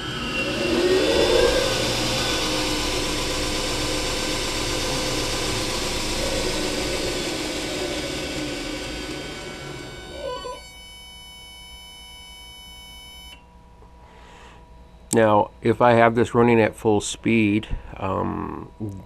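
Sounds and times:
belt grinder motor whine: 0.0s - 13.4s.

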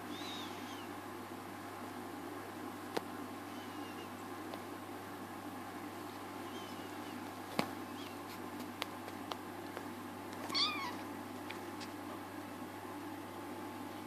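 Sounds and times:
kitten mewing: 10.5s - 11.0s.

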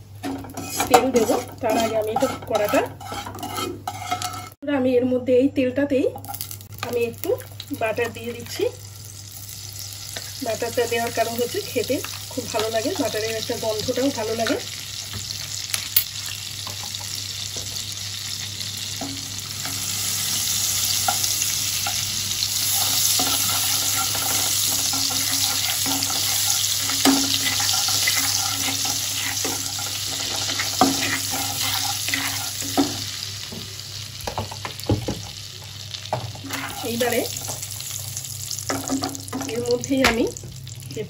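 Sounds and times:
spatula tapping and scraping pan: 0.2s - 4.6s, 22.9s - 33.7s
butter sizzling in hot oil: 6.2s - 41.0s.

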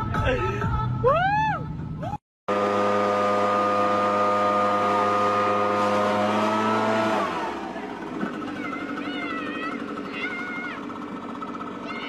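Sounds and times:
leaf blower engine: 2.5s - 12.0s.

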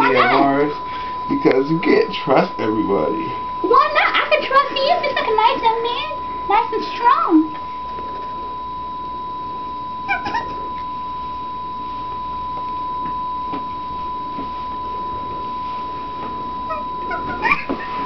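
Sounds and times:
steady high-pitched tone: 0.0s - 18.0s
squeaky meow-like call: 10.0s - 10.7s.

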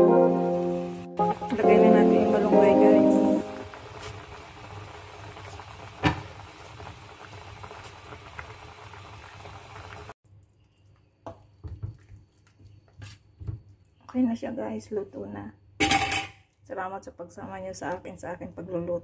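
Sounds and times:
broth boiling in a pot: 0.8s - 15.0s.

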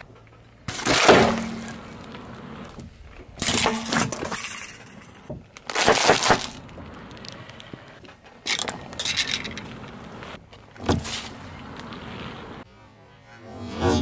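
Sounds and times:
tyre crushing objects: 0.7s - 2.0s, 5.6s - 6.7s
carton bursting under tyre: 0.7s - 2.4s, 5.7s - 6.9s.

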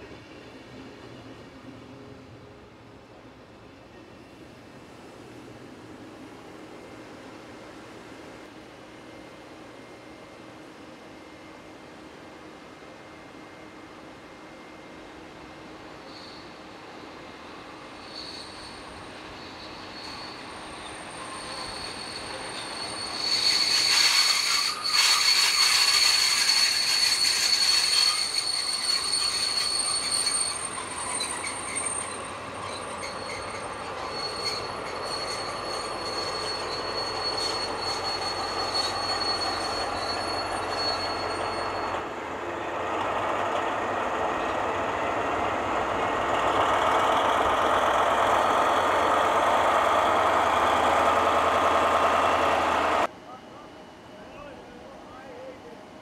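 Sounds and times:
wheels squealing on track: 18.0s - 42.0s, 46.4s - 53.1s
diesel engine drone: 42.7s - 53.1s.

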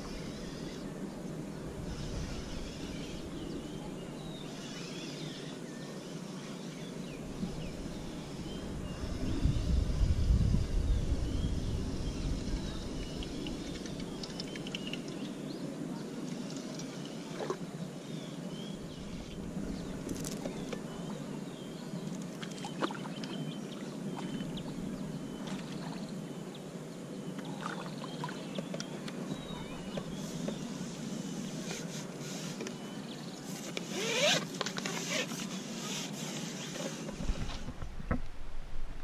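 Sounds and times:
small birds chirping: 0.0s - 17.3s, 18.0s - 37.7s
low rumble: 7.2s - 14.6s.

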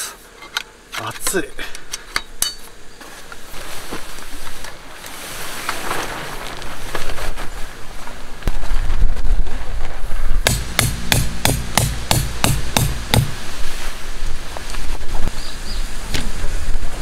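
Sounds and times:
tarp rustling: 2.9s - 10.4s, 13.3s - 17.0s
hammer knocking tent pegs: 10.4s - 13.4s.

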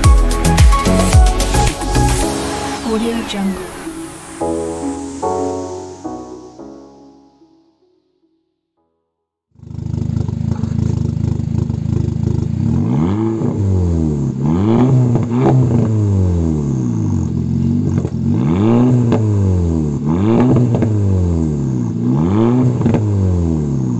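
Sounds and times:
car engine idling and revving: 9.6s - 23.9s.

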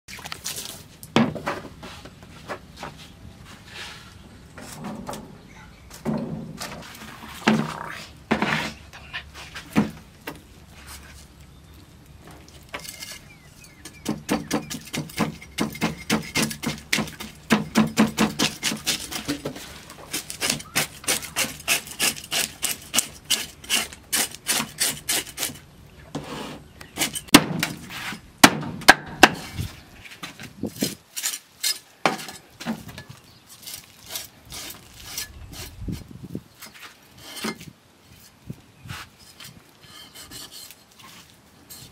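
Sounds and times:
cleaver scraping fish scales: 12.5s - 17.4s, 18.2s - 25.6s, 26.2s - 28.2s, 33.5s - 41.9s.

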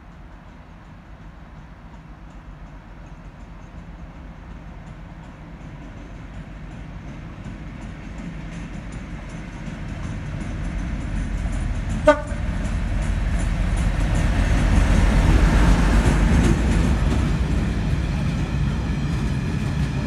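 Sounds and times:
freight train rumbling past: 0.0s - 20.0s
train wheel clatter: 0.0s - 20.0s
locomotive horn toot: 12.0s - 12.5s.

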